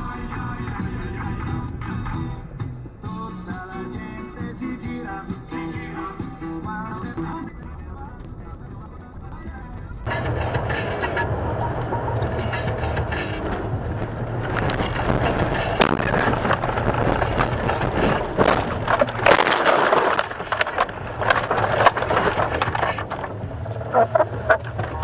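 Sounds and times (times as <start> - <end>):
scattered clatter: 7.2 - 25.0
car engine running: 10.0 - 25.0
car crunching through branches and snow: 10.1 - 25.0.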